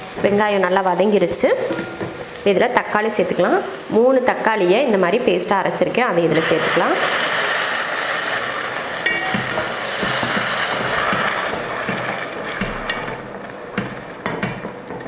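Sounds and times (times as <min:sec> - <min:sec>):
tomato puree sizzling in oil: 0:00.0 - 0:15.0
spatula scraping and tapping pot: 0:09.0 - 0:15.0.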